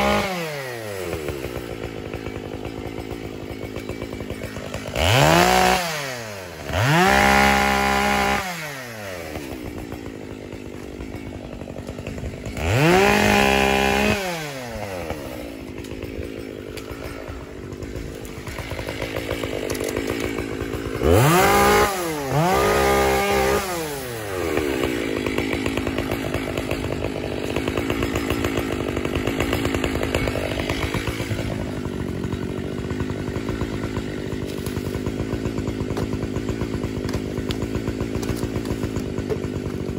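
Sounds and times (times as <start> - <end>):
chainsaw idling and revving: 0.0 - 39.9.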